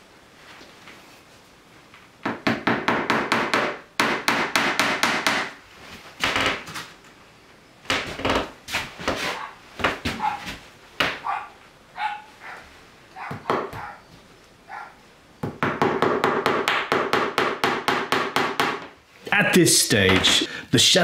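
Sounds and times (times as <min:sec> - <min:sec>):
hammer tacker strikes on wood: 0:02.2 - 0:05.6, 0:15.4 - 0:18.9.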